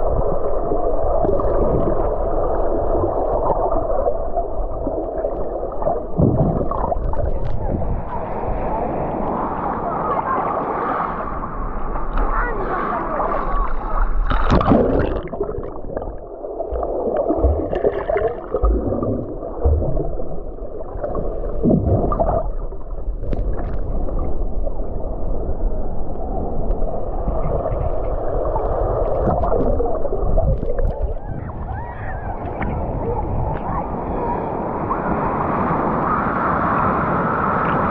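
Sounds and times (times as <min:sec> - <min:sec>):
water splashes: 0:00.0 - 0:34.1
surf gurgling and churning: 0:00.0 - 0:37.9.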